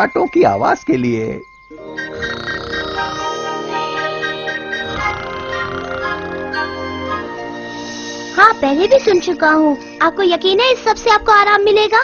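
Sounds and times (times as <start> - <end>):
high twinkling notes: 0.0 - 9.5.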